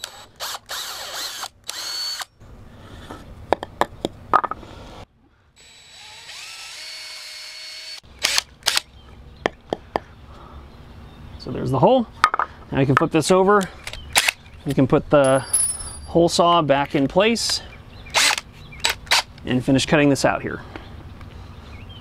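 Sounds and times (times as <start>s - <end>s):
cordless drill whining: 0.0s - 2.3s, 5.6s - 8.8s, 18.2s - 18.4s.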